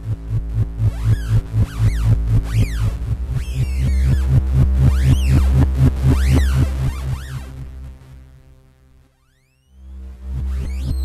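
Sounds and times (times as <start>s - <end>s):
pulsing synth bass: 0.0s - 8.7s, 9.4s - 11.0s
low held synth note: 0.0s - 11.0s
rising and falling synth sweeps: 0.8s - 7.6s.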